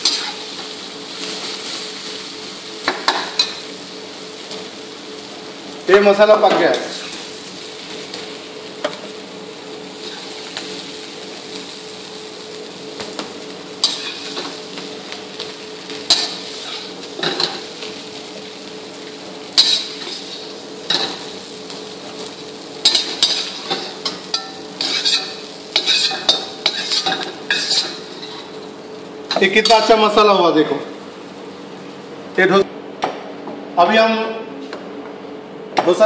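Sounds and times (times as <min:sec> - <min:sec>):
pan sizzling: 0:00.0 - 0:32.6
metal ladle scraping a pan: 0:24.4 - 0:28.5.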